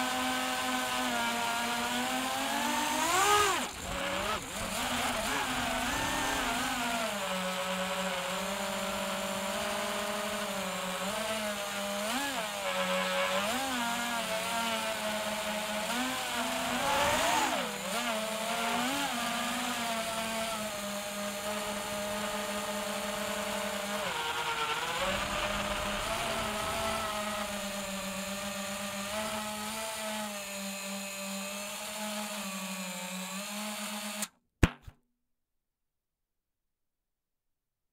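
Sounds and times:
drone motors buzzing: 0:00.2 - 0:30.4.

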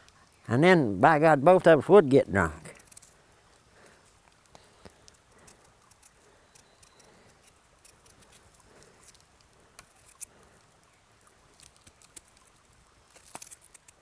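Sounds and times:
knife paring potato skin: 0:05.4 - 0:09.2, 0:13.1 - 0:14.0.

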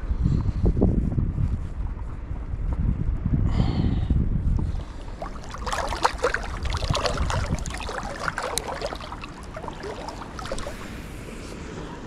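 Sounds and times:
water splashing and trickling: 0:04.6 - 0:11.5.

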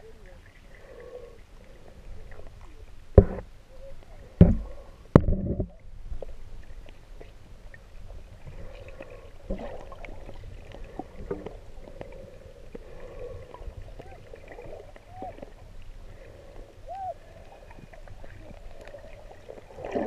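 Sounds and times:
underwater churning and bubbles: 0:00.0 - 0:20.0
loud thumps: 0:03.2 - 0:03.5.

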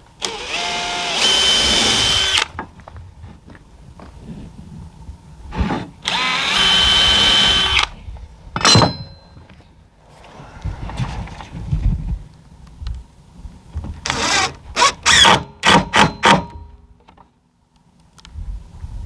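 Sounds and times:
cordless drill motor whine: 0:00.2 - 0:02.5, 0:06.1 - 0:07.9.

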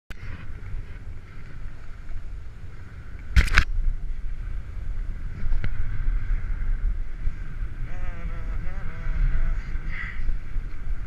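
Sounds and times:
wind rumbling on microphone: 0:00.1 - 0:11.0
small click: 0:03.4 - 0:03.7
snowboard sliding over snow: 0:04.0 - 0:11.0.

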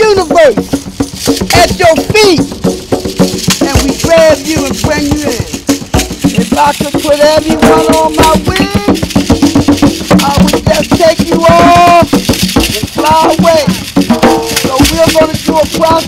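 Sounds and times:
hand drums playing: 0:00.0 - 0:16.0
shakers: 0:00.0 - 0:16.0
person singing: 0:06.4 - 0:09.0, 0:10.2 - 0:12.1, 0:12.7 - 0:13.8.

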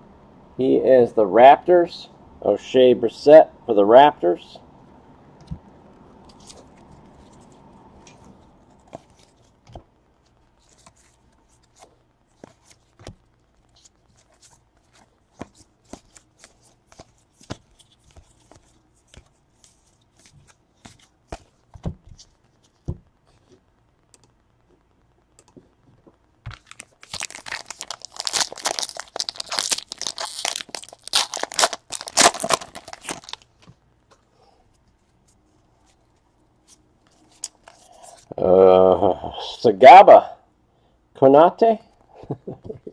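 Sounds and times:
foil wrapper tearing and crinkling: 0:26.5 - 0:33.5.

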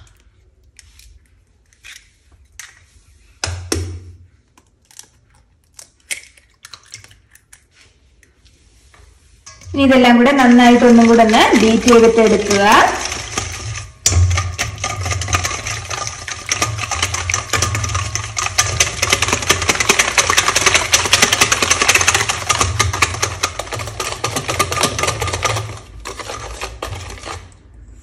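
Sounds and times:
whisk clicking against metal bowl: 0:09.5 - 0:27.6.

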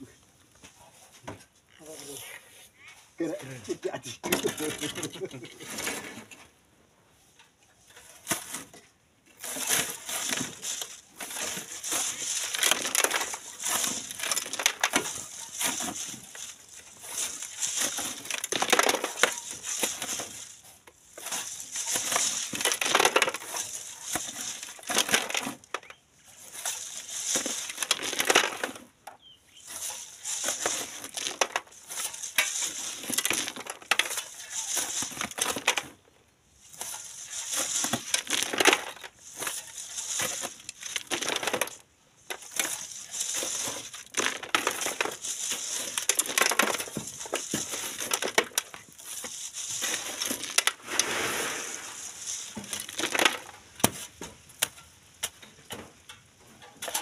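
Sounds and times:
gravel rattling in wire sieve: 0:03.2 - 0:06.4, 0:07.8 - 0:57.0.

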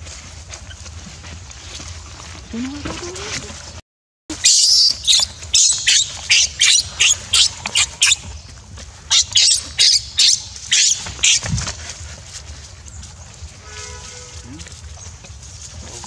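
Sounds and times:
baby macaque screaming: 0:04.3 - 0:08.3, 0:09.1 - 0:11.5.

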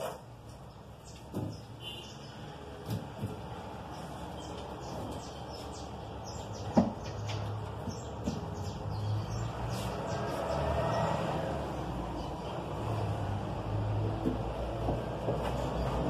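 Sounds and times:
small birds chirping: 0:00.5 - 0:13.2.

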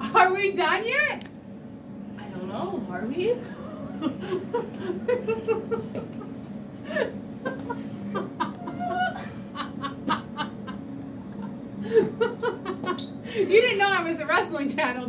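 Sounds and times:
women laughing: 0:03.4 - 0:13.6.

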